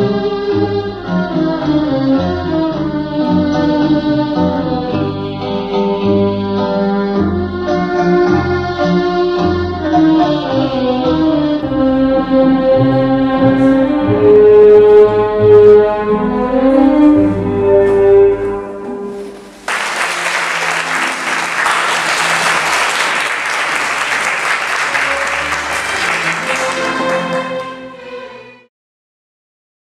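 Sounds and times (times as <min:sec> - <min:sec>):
music with long held notes: 0:00.0 - 0:28.7
audience applause: 0:19.4 - 0:28.2.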